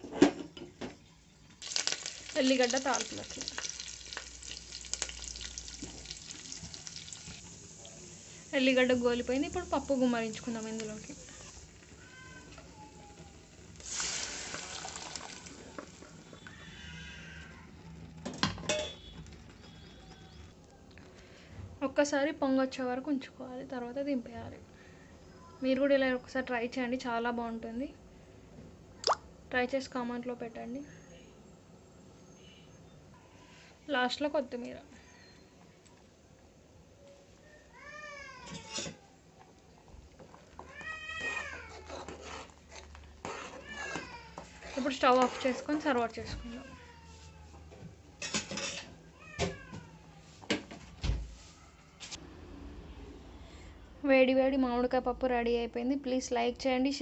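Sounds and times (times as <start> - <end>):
dal hissing in hot oil: 1.6 - 11.9, 13.8 - 15.5.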